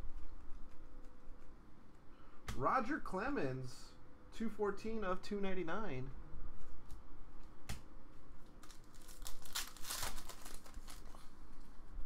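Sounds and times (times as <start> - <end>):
foil wrapper crinkling and tearing: 8.5 - 11.4.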